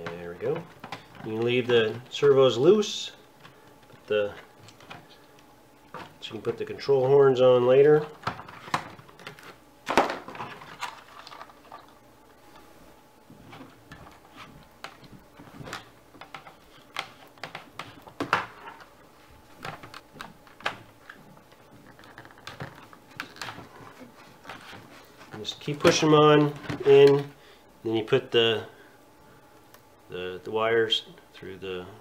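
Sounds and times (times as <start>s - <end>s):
plastic parts clicking and knocking: 21.8s - 23.7s.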